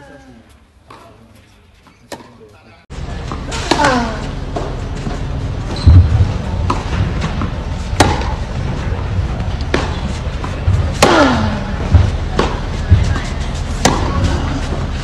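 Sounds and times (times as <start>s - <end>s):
tennis racket hitting ball: 3.3s - 5.2s, 6.6s - 8.5s, 9.6s - 15.0s
person grunting: 11.0s - 11.8s.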